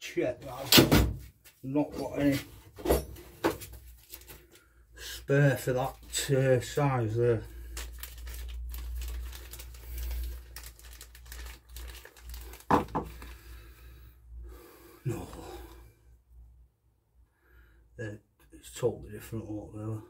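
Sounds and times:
plastic packet crinkling: 3.8 - 4.6, 7.4 - 13.5.

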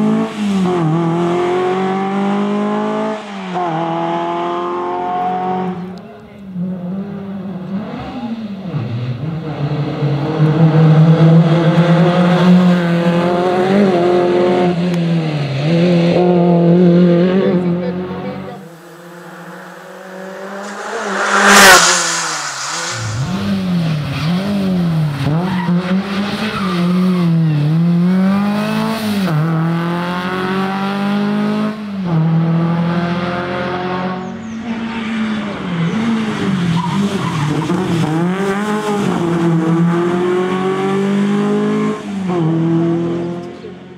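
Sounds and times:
rally car engine revving: 0.0 - 43.8
loud sharp burst: 18.6 - 24.5.

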